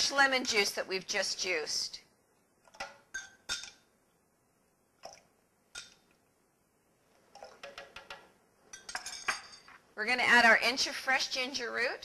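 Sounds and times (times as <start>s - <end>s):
liquid dripping: 5.0s - 6.3s, 7.1s - 8.3s.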